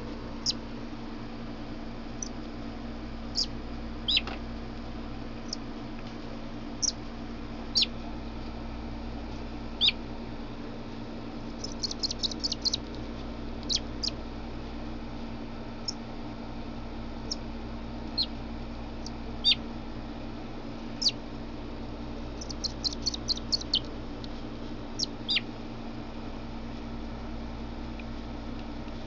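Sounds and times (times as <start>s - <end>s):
fledgling bird high chirps: 3.4s - 4.3s, 7.7s - 7.9s, 9.8s - 10.0s, 11.6s - 12.8s, 13.6s - 14.2s, 19.0s - 19.6s, 22.4s - 23.9s, 25.0s - 25.4s.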